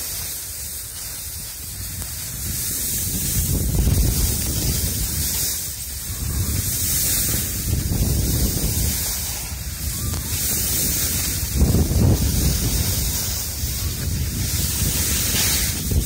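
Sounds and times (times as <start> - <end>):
skis sliding on snow: 0.0 - 16.0
wind buffeting microphone: 0.6 - 16.0.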